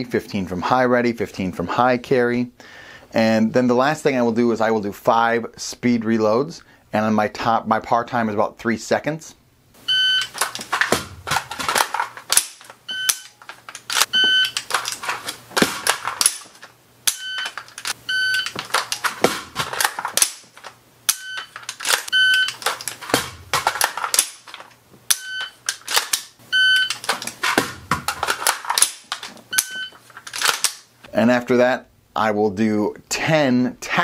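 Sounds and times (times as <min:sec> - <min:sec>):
shot timer beeping: 0:09.9 - 0:10.4, 0:12.9 - 0:13.4, 0:14.1 - 0:14.6, 0:17.1 - 0:18.5, 0:21.1 - 0:21.5, 0:22.1 - 0:22.6, 0:25.1 - 0:25.6, 0:26.5 - 0:27.0, 0:29.5 - 0:30.0
magazines clattering: 0:10.2 - 0:24.8, 0:25.4 - 0:30.8
bolt and trigger clicks: 0:10.2 - 0:30.9.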